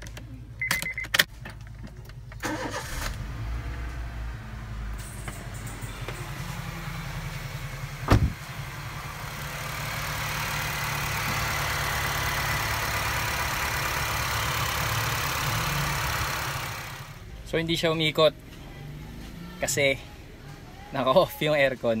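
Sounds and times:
car engine idling: 1.3s - 22.0s
engine hiss and whine: 2.1s - 21.0s
car door shutting: 8.0s - 8.4s.

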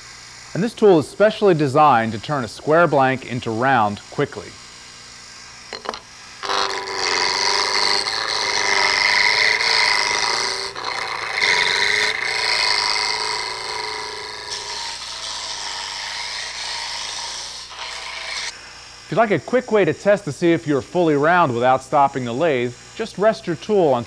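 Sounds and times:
gouge rasping on spinning wood: 5.7s - 18.5s.

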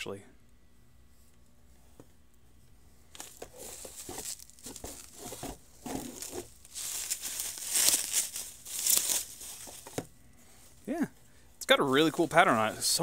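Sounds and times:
bubble wrap crinkling: 3.1s - 10.1s.

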